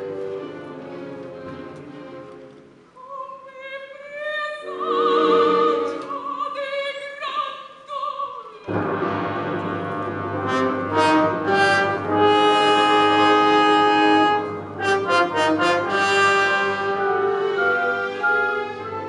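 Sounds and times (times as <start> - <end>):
orchestra playing: 0.0 - 2.9, 8.6 - 19.0
operatic soprano singing: 3.0 - 8.7.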